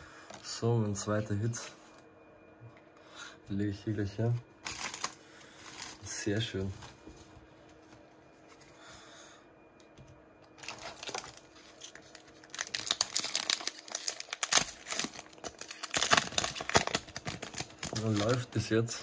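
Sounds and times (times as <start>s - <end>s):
foil wrapper tearing and crinkling: 4.6s - 6.0s, 10.6s - 18.5s.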